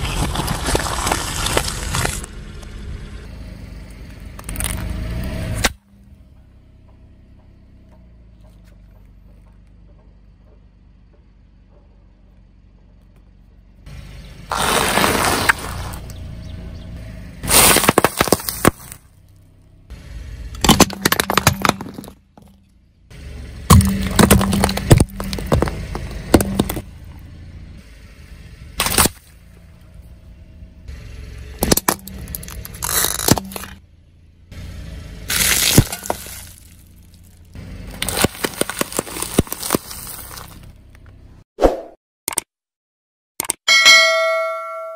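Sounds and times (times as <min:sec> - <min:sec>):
plastic cracking under car tyre: 0:00.0 - 0:02.3, 0:17.5 - 0:19.0, 0:35.3 - 0:37.3, 0:37.9 - 0:40.8
car rolling noise: 0:00.0 - 0:41.4.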